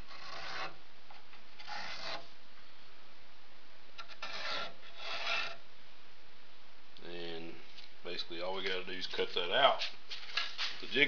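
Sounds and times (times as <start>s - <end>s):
pencil scraping across wood: 0.0s - 0.8s, 1.6s - 2.3s, 4.0s - 5.6s.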